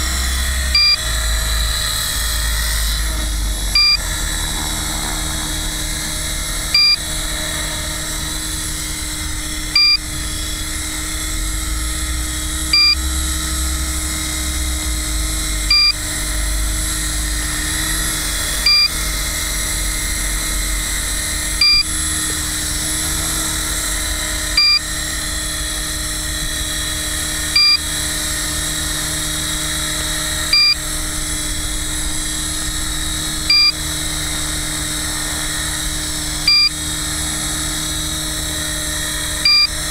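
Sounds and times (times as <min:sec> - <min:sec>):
rc helicopter whine: 0:00.0 - 0:39.9
short electronic beep: 0:03.8 - 0:04.0, 0:06.8 - 0:07.0, 0:09.8 - 0:10.0, 0:12.7 - 0:13.0, 0:15.7 - 0:16.0, 0:21.6 - 0:21.9, 0:24.6 - 0:24.8, 0:27.6 - 0:27.8, 0:30.5 - 0:30.8, 0:33.5 - 0:33.8, 0:36.5 - 0:36.8, 0:39.4 - 0:39.8.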